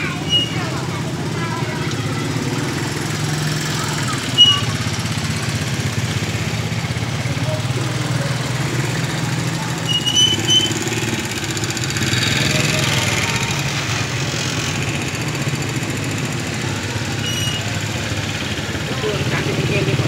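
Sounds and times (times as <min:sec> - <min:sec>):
small motorcycle engines: 0:00.0 - 0:20.0
short high chirps: 0:00.3 - 0:00.6, 0:04.4 - 0:04.7.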